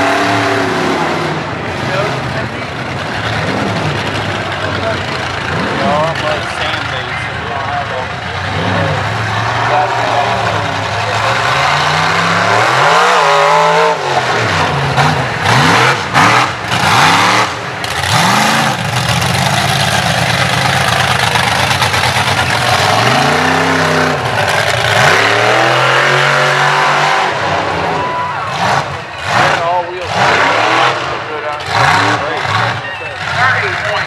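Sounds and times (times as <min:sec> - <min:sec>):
truck engine revving hard: 0:00.0 - 0:34.0.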